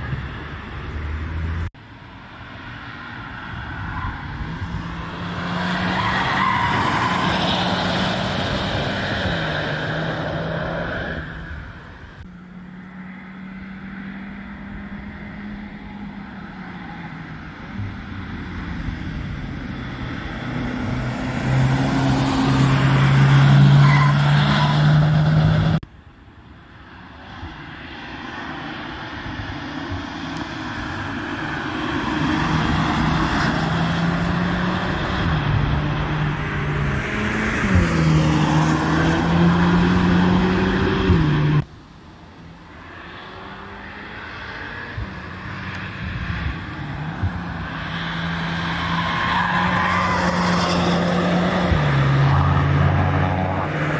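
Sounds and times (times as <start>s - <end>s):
car engines driving past: 0.0s - 25.8s, 26.5s - 53.9s.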